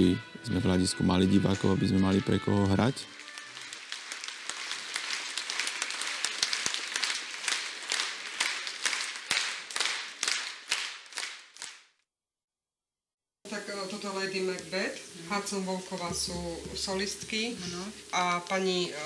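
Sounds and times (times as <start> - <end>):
audience applauding: 1.4 - 11.9.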